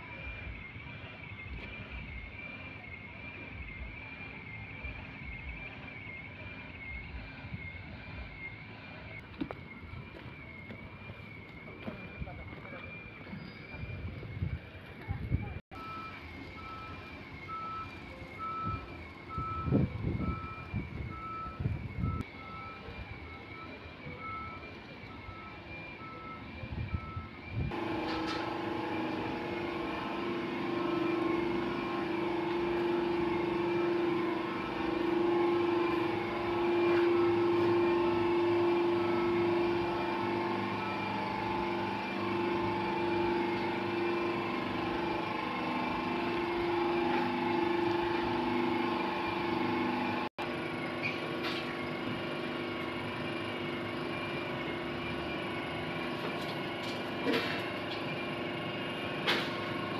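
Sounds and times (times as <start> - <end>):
machine hum: 27.5 - 59.9.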